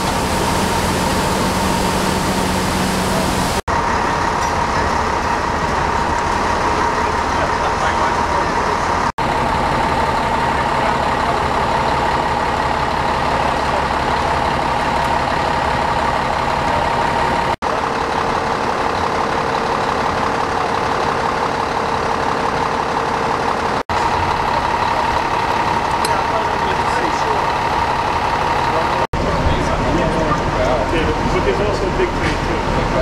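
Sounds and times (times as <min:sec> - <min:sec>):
steady high whine: 0:00.0 - 0:18.6
fire engine idling: 0:00.0 - 0:33.0.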